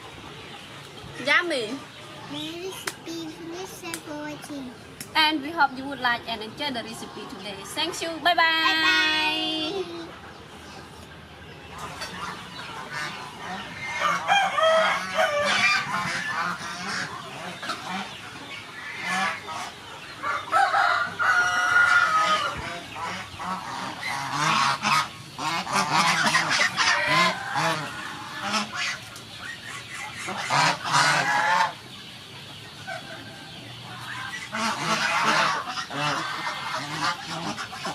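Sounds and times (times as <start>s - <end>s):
geese honking: 11.6s - 37.9s.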